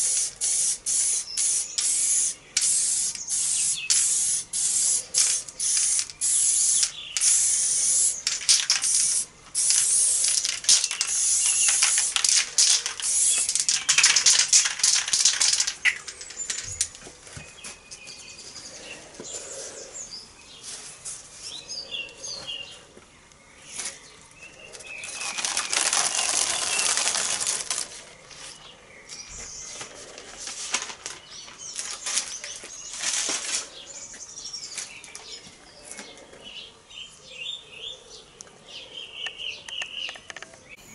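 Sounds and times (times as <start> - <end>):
spray-paint can hissing: 0.0 - 16.0
paper stencils rustling: 0.4 - 17.1, 24.7 - 28.7, 29.7 - 33.8.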